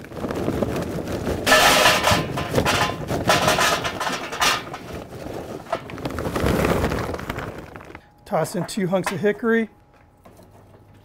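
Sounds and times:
charcoal clattering into metal basket: 1.4s - 9.4s.

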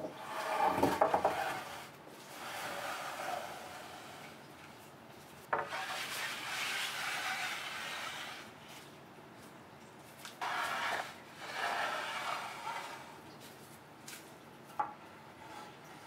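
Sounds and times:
wood rubbing on wood: 0.0s - 4.4s, 5.5s - 8.8s, 10.3s - 13.2s.

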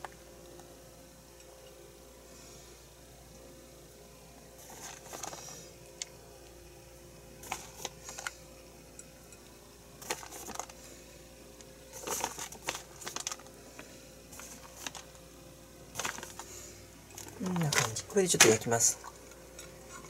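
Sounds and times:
plastic packet rustling: 4.6s - 5.7s, 7.4s - 8.4s, 10.0s - 10.8s, 11.9s - 15.2s, 15.9s - 19.2s.

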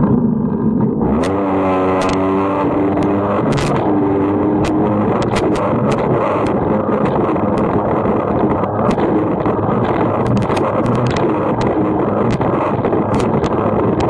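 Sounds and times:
two-stroke watercraft engine: 0.0s - 14.0s
sharp clicks: 2.0s - 2.2s, 2.9s - 3.9s, 4.6s - 14.0s.

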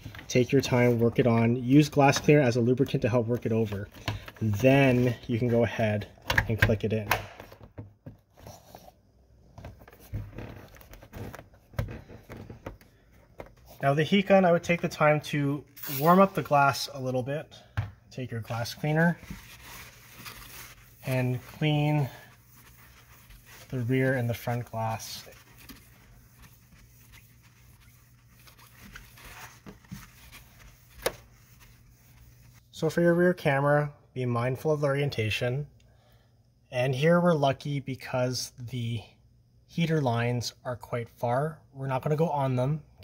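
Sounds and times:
rubber rubbing on plastic: 9.9s - 12.8s, 18.6s - 32.6s.

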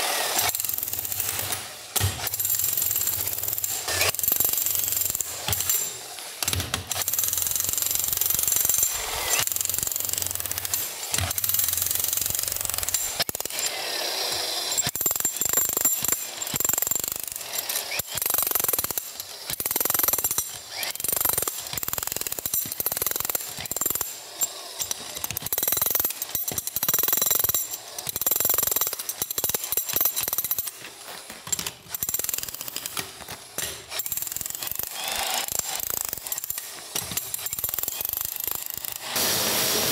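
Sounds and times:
demolition hammer chiselling stone: 0.0s - 39.9s.

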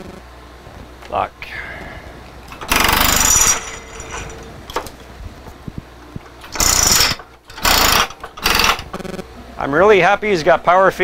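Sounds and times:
air-powered drawbar rattling: 1.8s - 9.1s.

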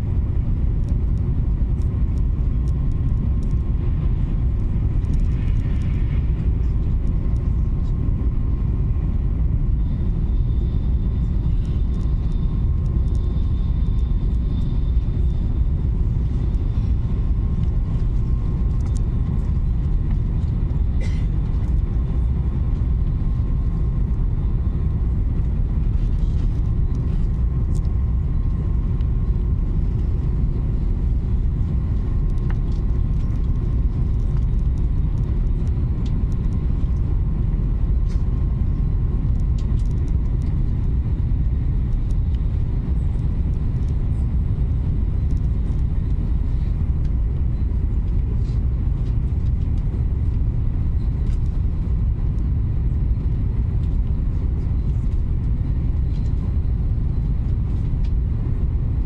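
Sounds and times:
faint steady whine: 0.0s - 59.0s
train cabin low rumble: 0.0s - 59.0s.

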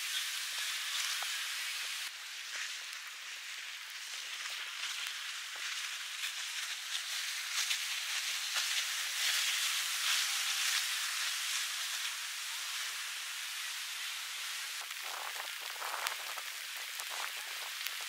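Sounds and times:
rain falling: 10.7s - 18.0s.

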